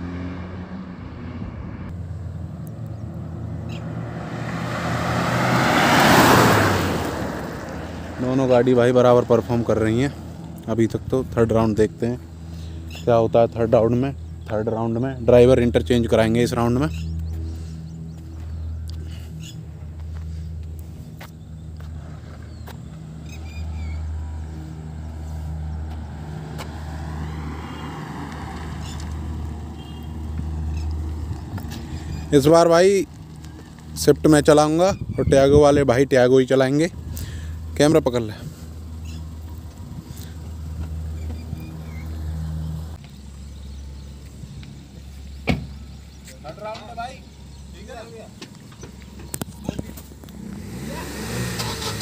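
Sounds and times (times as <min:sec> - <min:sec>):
car approaching: 0:00.0 - 0:52.0
car engine humming: 0:00.0 - 0:52.0
car engine idling: 0:36.2 - 0:50.9.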